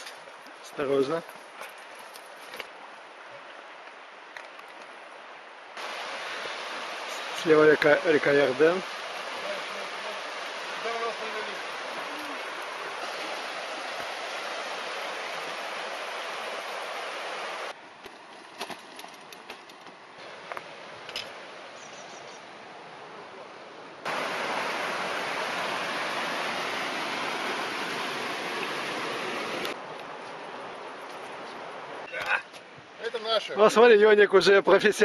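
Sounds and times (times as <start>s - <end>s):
river rushing over rocks: 5.8s - 17.8s, 24.0s - 30.9s.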